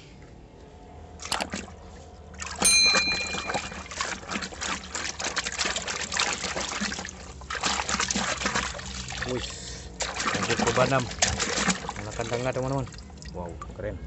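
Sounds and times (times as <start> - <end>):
water sloshing and splashing: 1.1 - 13.9
short bell-like ding: 2.6 - 3.9.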